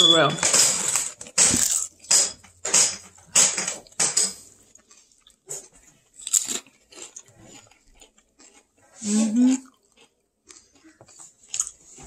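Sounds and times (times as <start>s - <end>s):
crunching bites of tostada: 1.0s - 8.9s
chewing: 3.8s - 12.0s.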